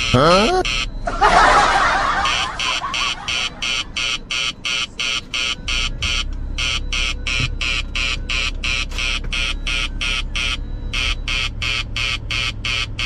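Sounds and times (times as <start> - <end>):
low hum: 0.0 - 4.4
phone alert chirping: 0.0 - 7.8.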